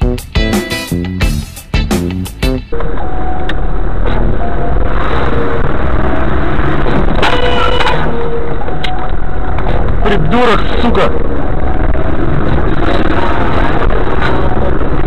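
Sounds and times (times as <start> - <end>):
car road and engine noise: 0.0 - 15.0
short pitched tone: 6.9 - 9.4.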